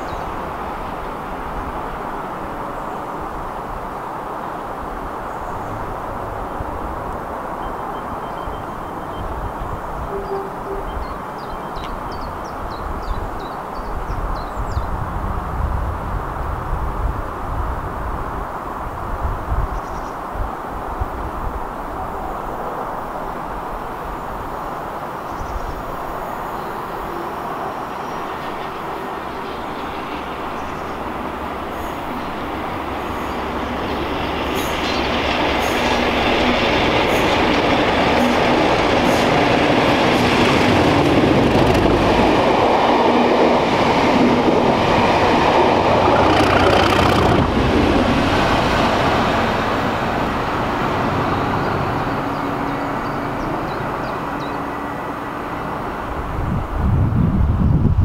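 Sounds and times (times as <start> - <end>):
diesel locomotive engines passing: 0.0 - 19.5, 20.2 - 58.0
wheels clicking on rails: 33.8 - 48.2.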